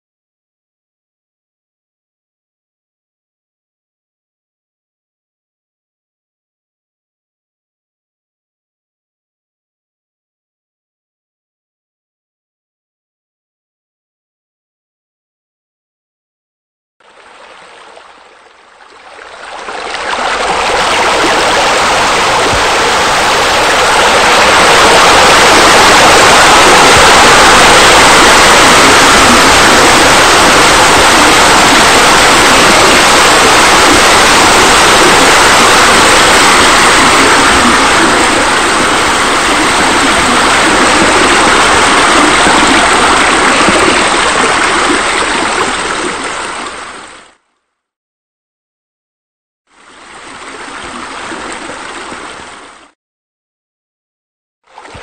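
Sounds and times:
falling splashing water: 0:17.0 - 0:47.0.

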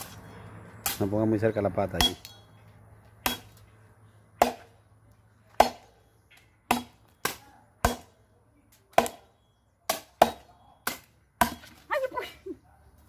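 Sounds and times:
machete chopping into log: 0:03.2 - 0:03.6, 0:04.4 - 0:04.7, 0:05.5 - 0:05.9, 0:06.7 - 0:08.1, 0:08.9 - 0:09.3, 0:09.9 - 0:11.8.

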